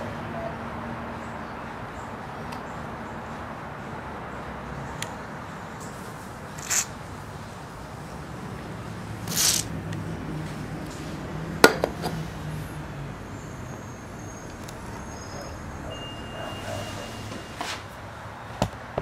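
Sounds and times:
street traffic hum: 0.0 - 19.0
gritty scraping of joint: 6.6 - 7.0, 9.2 - 9.7.

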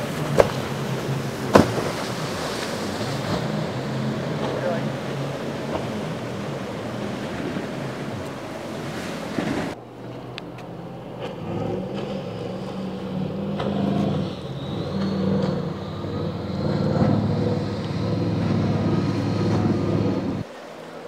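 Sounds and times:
powerboat engines droning: 0.0 - 21.0
rush of wind and spray: 0.0 - 21.0
thin high whine: 12.1 - 20.4.

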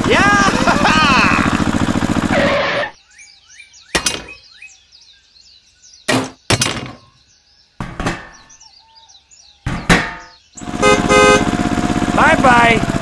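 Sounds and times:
faint bird chirping: 2.9 - 10.6.

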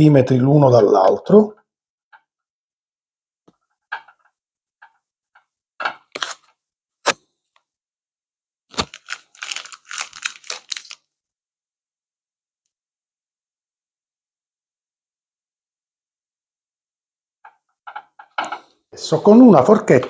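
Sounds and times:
crinkling rustle: 8.7 - 11.1.

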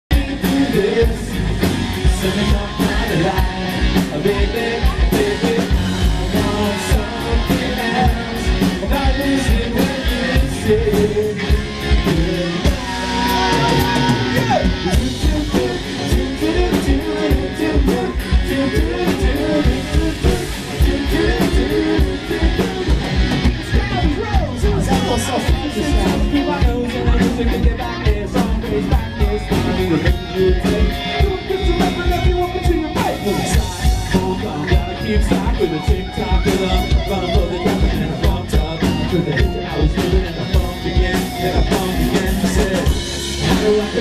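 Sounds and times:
man singing: 0.0 - 44.0
drum kit beating: 0.1 - 44.0
electric guitar: 0.1 - 44.0
live rock band: 0.1 - 44.0.

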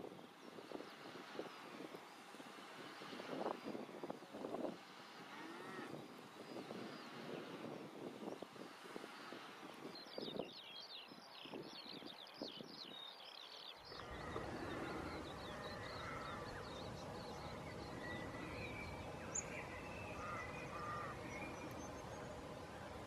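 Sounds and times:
noisy outdoor background: 0.0 - 23.0
lower bird calls: 5.2 - 8.4, 10.0 - 23.0.

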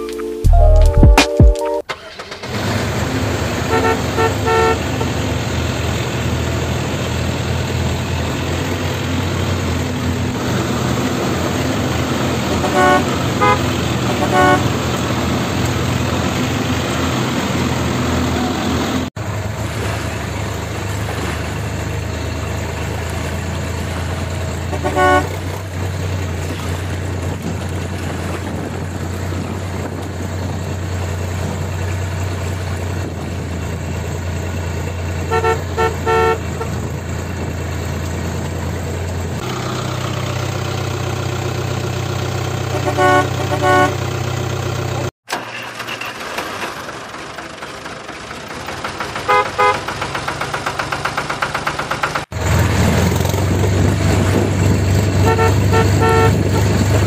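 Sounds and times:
vehicle engine drone: 1.8 - 57.0
horn toots: 3.6 - 5.3, 12.4 - 15.0, 24.7 - 25.5, 35.3 - 36.8, 42.7 - 44.2, 49.3 - 49.9, 55.1 - 57.0.

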